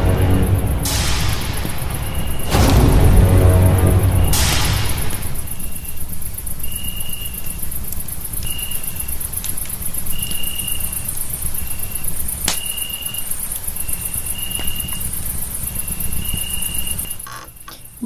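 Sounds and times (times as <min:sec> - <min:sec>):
low rumble: 0:00.0 - 0:06.6
pulsing insect chorus: 0:00.0 - 0:18.0
cricket trilling: 0:05.1 - 0:18.0.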